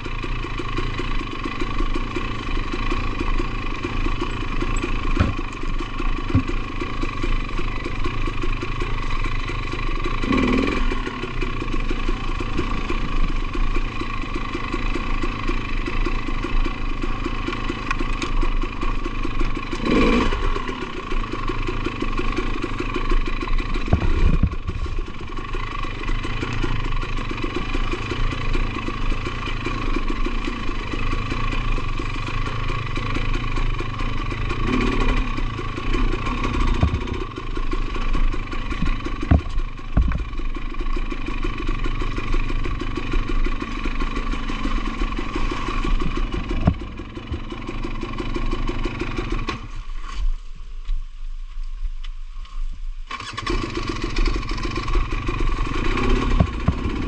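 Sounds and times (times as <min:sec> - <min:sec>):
two-stroke engine running and revving: 0:00.0 - 0:50.2, 0:53.1 - 0:57.0.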